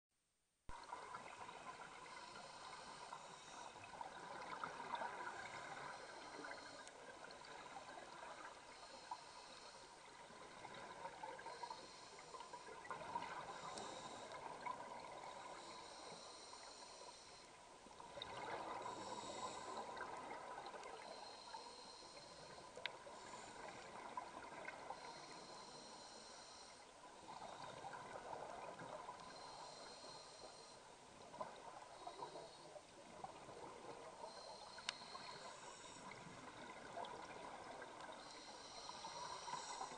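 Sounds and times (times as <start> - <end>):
regulator breathing hiss: 2.0 - 3.8, 8.7 - 10.1, 11.4 - 14.4, 15.4 - 17.6, 18.8 - 19.9, 21.0 - 23.8, 25.0 - 26.9, 29.2 - 30.9, 34.2 - 36.3, 38.2 - 39.9.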